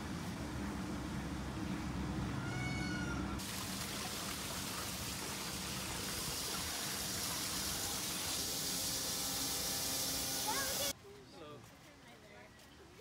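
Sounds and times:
water rushing down wooden flume: 0:03.4 - 0:10.9.

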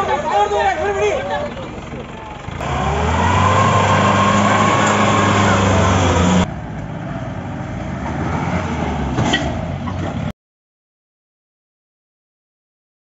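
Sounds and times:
jeep engine revving: 0:01.3 - 0:10.3.

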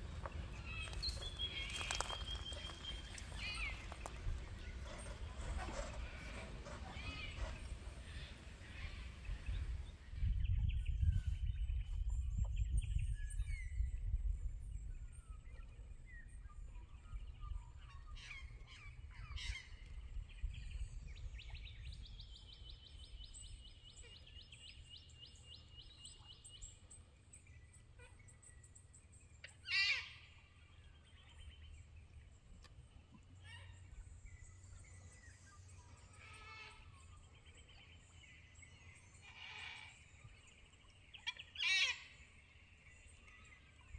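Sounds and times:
wild birds calling: 0:00.0 - 0:10.4, 0:15.3 - 0:43.9
loud wavering bird call: 0:41.2 - 0:42.2.

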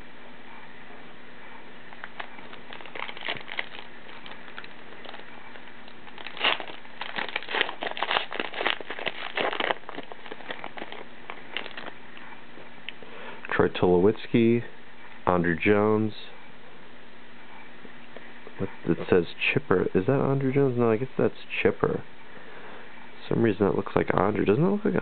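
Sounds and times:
cards rustling: 0:02.0 - 0:12.0
foil wrapper crinkling: 0:02.0 - 0:12.0.

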